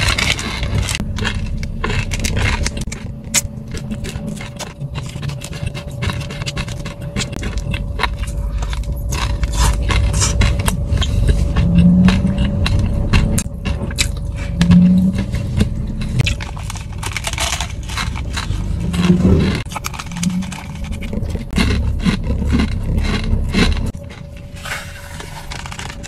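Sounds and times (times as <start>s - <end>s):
plastic snack packet crinkling: 0.0s - 11.1s, 16.2s - 26.0s
crunchy chewing: 0.0s - 26.0s.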